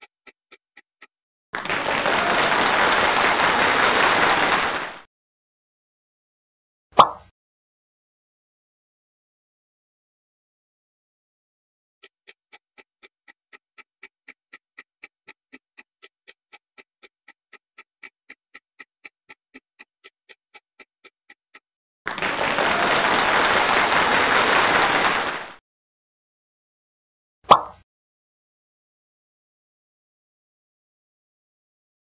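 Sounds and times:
clock-like ticking: 0:00.0 - 0:01.1, 0:12.0 - 0:21.7
loud burst of noise: 0:01.6 - 0:05.0, 0:22.1 - 0:25.6.

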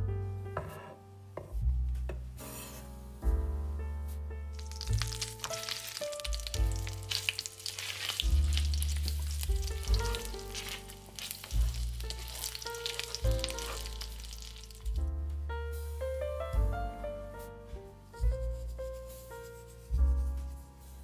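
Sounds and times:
food sizzling in hot oil: 0:04.6 - 0:15.0.

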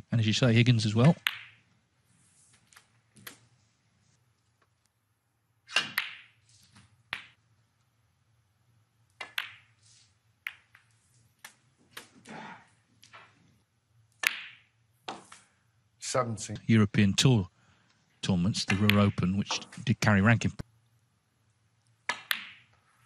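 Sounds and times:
snooker balls clicking: 0:01.0 - 0:01.8, 0:05.7 - 0:07.6, 0:09.0 - 0:09.8, 0:10.4 - 0:12.3, 0:14.1 - 0:15.5, 0:18.6 - 0:19.9, 0:21.8 - 0:22.9.

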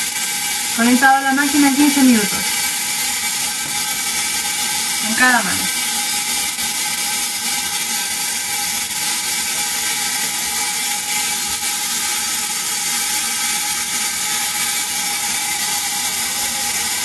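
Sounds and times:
spark gap sizzling buzz: 0:00.1 - 0:17.0.

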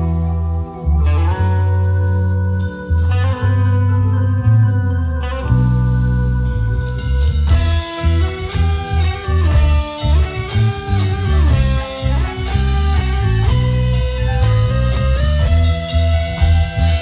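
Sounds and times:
bass guitar line: 0:00.0 - 0:17.0
electric guitar melody: 0:00.0 - 0:17.0
steady drums: 0:05.4 - 0:17.0.

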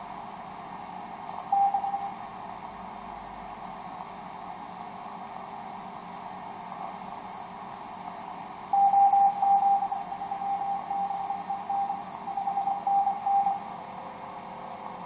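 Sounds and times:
morse code tone: 0:01.5 - 0:02.1, 0:08.8 - 0:13.6.

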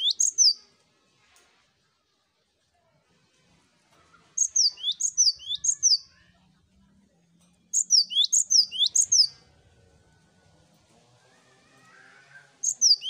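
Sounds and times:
bird singing high notes: 0:04.4 - 0:06.1, 0:07.8 - 0:09.3, 0:12.6 - 0:13.0.

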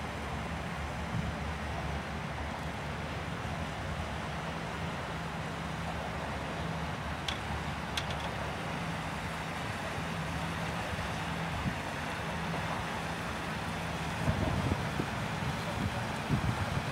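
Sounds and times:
wind hiss on microphone: 0:00.5 - 0:04.6, 0:10.3 - 0:16.9.

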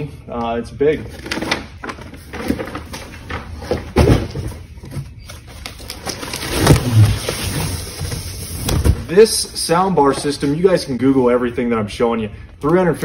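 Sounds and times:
cardboard boxes scraping together: 0:06.1 - 0:09.1.

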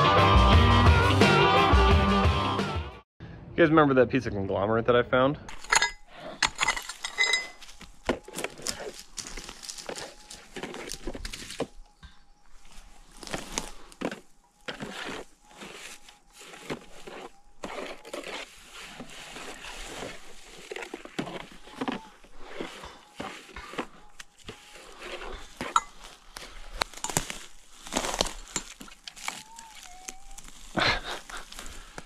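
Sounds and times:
sharp clinks: 0:05.5 - 0:07.7
rocks and gravel crunching: 0:05.5 - 0:32.0.

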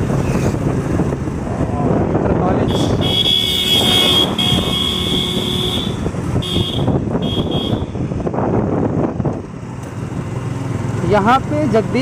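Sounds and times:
vehicle engine and road noise: 0:00.0 - 0:12.0
vehicle horn blasts: 0:02.7 - 0:08.0.

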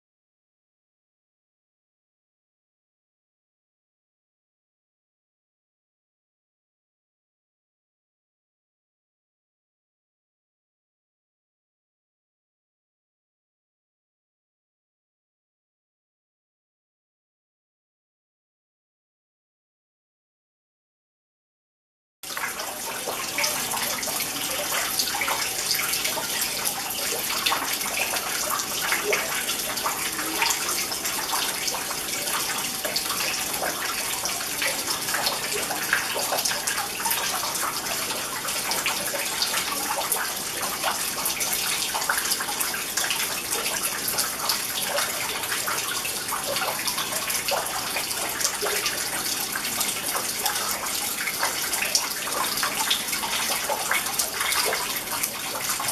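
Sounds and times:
water fountain trickling and splashing: 0:22.2 - 0:55.9.

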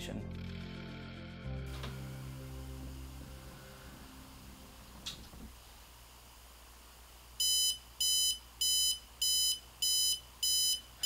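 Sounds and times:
alarm clock beeping: 0:07.4 - 0:10.9.

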